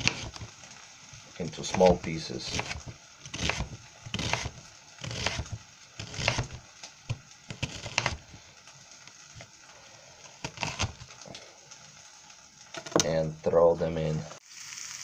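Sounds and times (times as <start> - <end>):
knife chopping onion on board: 0.0 - 0.5, 1.7 - 6.6, 7.5 - 8.2.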